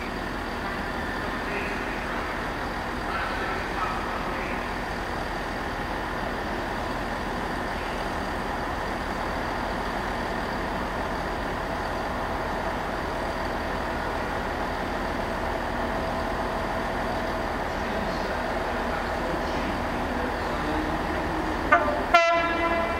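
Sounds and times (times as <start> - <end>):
diesel locomotive engine humming: 0.0 - 22.9.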